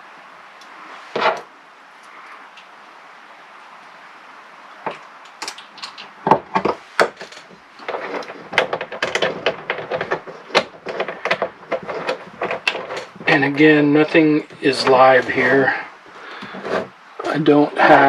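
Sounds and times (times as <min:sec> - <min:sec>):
battery cables rattling: 0:04.9 - 0:18.0.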